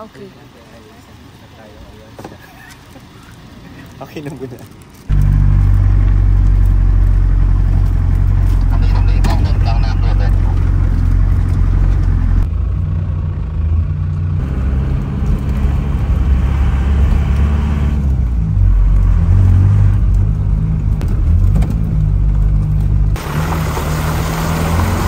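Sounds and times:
vehicle engine rumbling: 0.0s - 25.0s.

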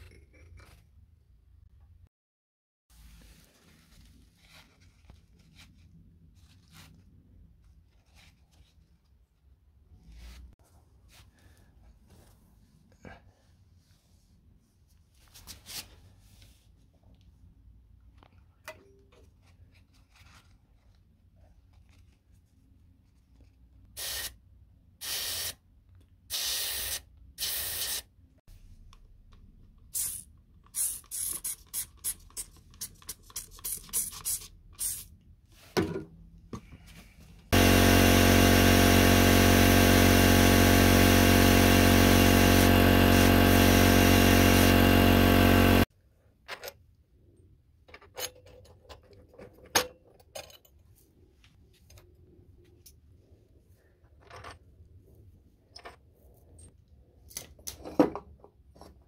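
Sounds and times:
spray bottle squirts: 29.9s - 32.4s.

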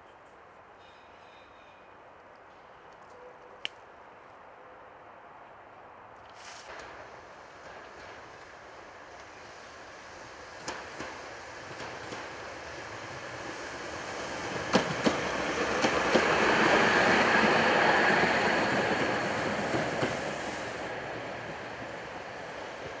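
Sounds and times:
tram rolling noise: 6.7s - 23.0s.

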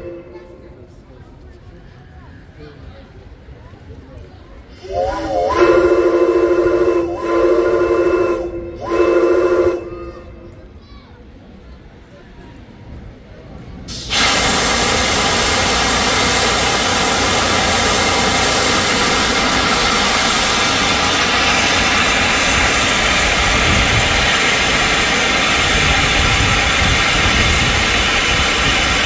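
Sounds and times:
steam venting hiss: 4.7s - 9.8s, 13.9s - 29.0s.

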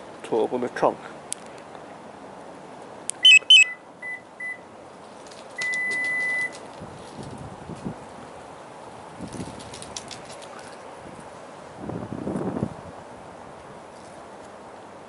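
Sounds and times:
car liftgate warning beeps: 3.2s - 4.7s, 5.6s - 6.5s.

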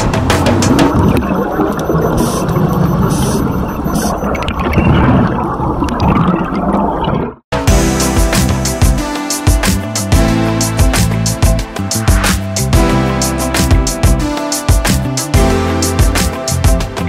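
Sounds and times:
underwater bubbles rushing and gurgling: 0.6s - 7.4s.

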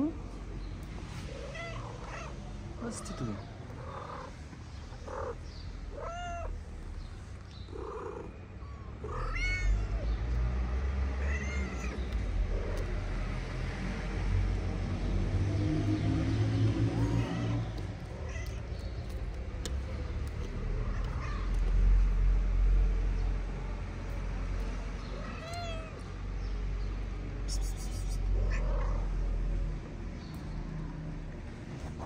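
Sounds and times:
kittens meowing: 1.3s - 7.0s, 7.7s - 10.2s, 11.2s - 13.1s, 16.9s - 21.8s, 25.0s - 26.1s, 27.6s - 29.2s.

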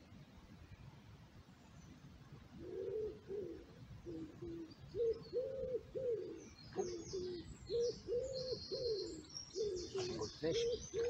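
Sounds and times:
pigeon cooing: 2.6s - 11.0s
small bird chirping: 4.2s - 11.0s.

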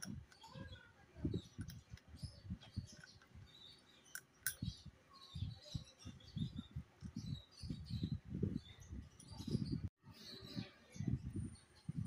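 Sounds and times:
birds chirping: 0.0s - 12.0s.

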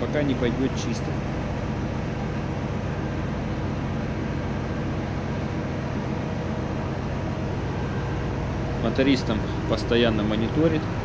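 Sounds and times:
engine room machinery drone: 0.0s - 11.0s.

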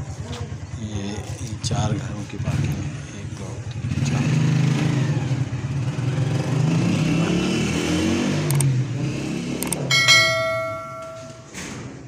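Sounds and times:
vehicle engine running: 0.0s - 11.6s
bell-like chime: 9.9s - 11.6s.

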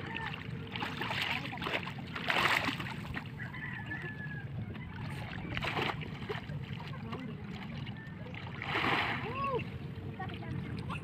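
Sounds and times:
distant rooster crowing: 3.3s - 5.1s.

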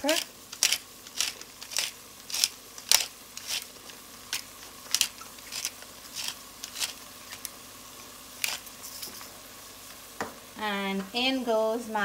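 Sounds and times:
pepper grinder crunching: 0.0s - 7.6s, 8.4s - 9.3s.

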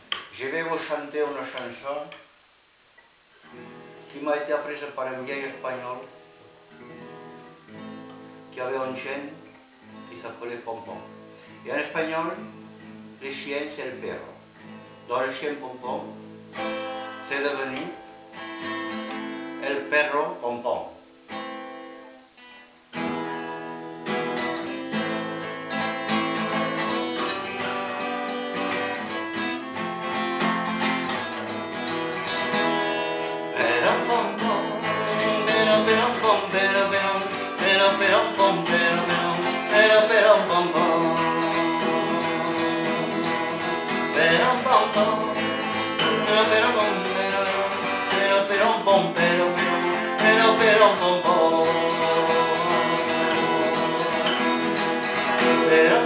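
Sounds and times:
acoustic guitar strummed: 3.0s - 56.0s
man singing: 8.5s - 9.4s, 10.1s - 12.6s, 15.1s - 16.3s, 17.2s - 18.0s, 19.6s - 21.0s, 33.3s - 56.0s.

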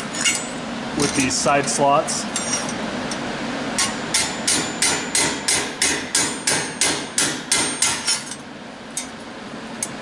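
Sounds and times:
hammer striking steel plate: 3.8s - 8.3s.

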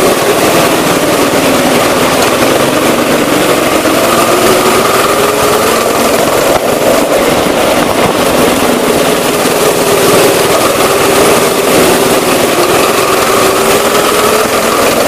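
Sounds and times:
go-kart engine running: 0.0s - 15.0s.

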